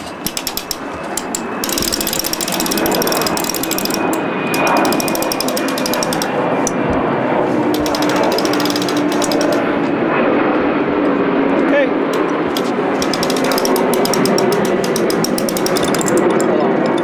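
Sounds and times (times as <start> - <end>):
winch pawls clicking rapidly: 0.0 - 6.4, 7.7 - 9.6, 12.1 - 17.0.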